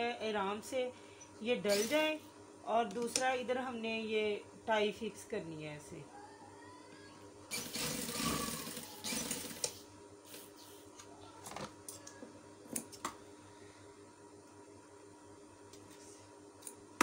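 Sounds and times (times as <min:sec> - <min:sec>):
sewing machine running: 0:07.5 - 0:09.8.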